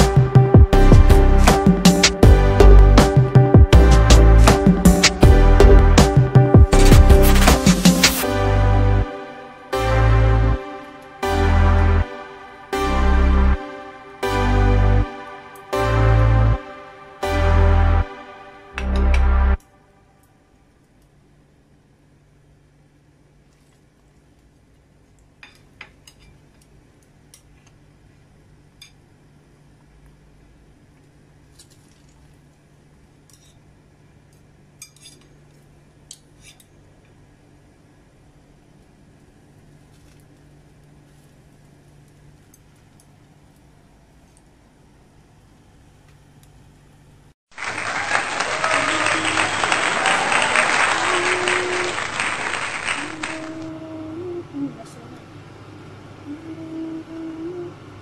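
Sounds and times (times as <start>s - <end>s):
crowd applause: 47.5s - 53.7s
low steady hum: 50.8s - 58.0s.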